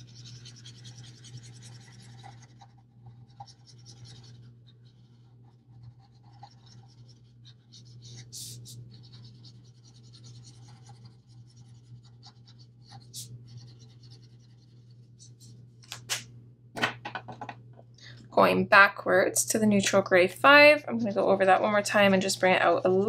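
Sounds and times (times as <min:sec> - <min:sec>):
marker scratching on paper: 0:00.0 - 0:15.6.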